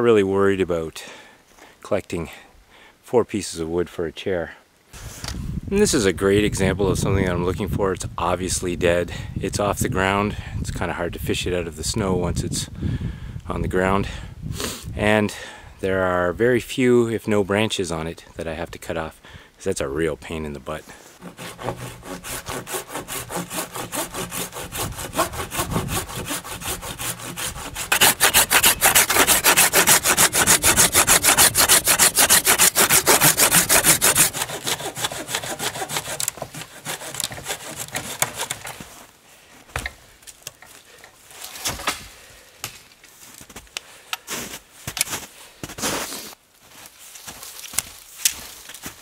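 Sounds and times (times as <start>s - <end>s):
hand saw cutting wood: 21.2s - 38.8s
knocks and crunches of wood: 34.4s - 39.1s, 39.7s - 46.1s, 46.8s - 49.0s.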